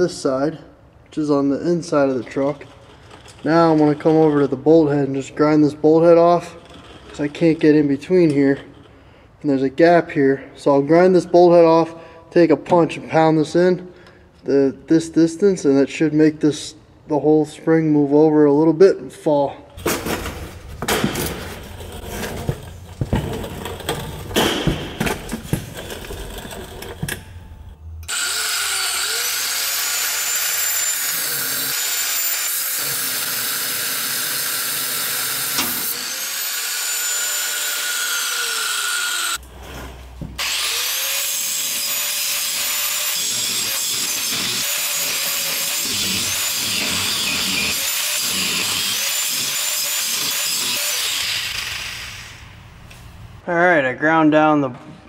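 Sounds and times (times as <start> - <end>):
knocking and scraping: 19.8 - 27.4
angle grinder grinding steel: 28.1 - 39.4, 40.4 - 52.5.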